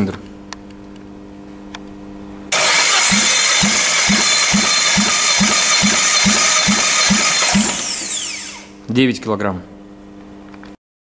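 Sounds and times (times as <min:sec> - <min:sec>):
engine cranking on starter motor: 0:02.5 - 0:08.8.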